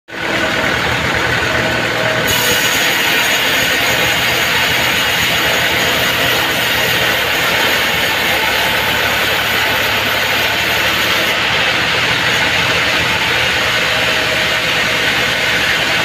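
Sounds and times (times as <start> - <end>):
band saw cutting log: 0.3 - 16.0.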